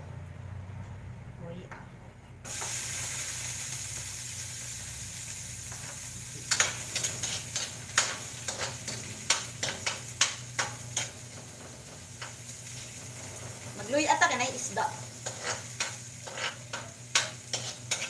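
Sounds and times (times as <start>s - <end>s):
food sizzling in hot oil: 2.5s - 18.0s
metal spatula scraping wok: 5.7s - 11.4s, 12.2s - 18.0s.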